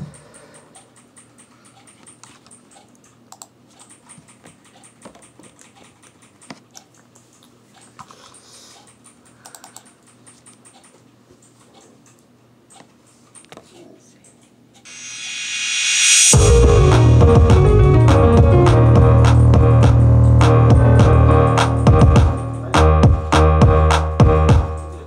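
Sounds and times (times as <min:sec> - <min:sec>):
faint clicks and taps: 0:00.8 - 0:14.6.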